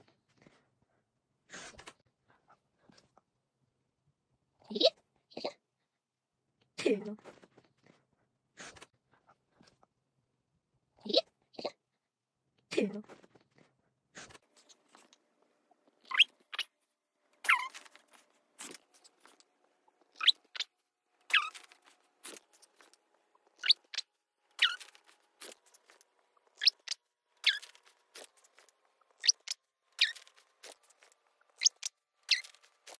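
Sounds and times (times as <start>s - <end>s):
sped-up puppy squeaks: 17.4s - 17.8s, 20.1s - 20.7s, 21.3s - 21.7s, 23.6s - 24.0s, 24.6s - 25.6s, 26.5s - 28.3s, 29.2s - 30.8s, 31.6s - 32.7s.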